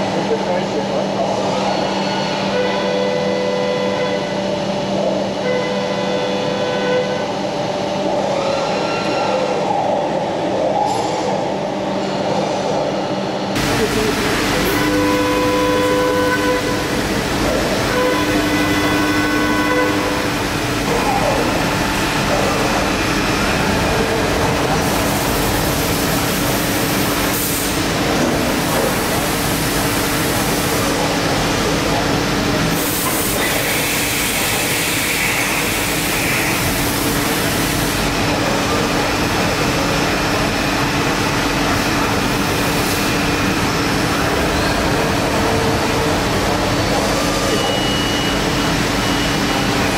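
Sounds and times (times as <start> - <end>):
milling machine running: 13.5 - 49.9.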